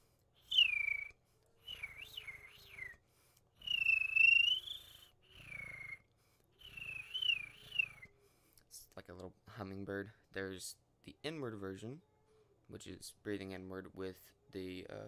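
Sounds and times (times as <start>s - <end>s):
beatbox mouth whistle with rattle: 0.4s - 3.0s, 3.6s - 8.1s.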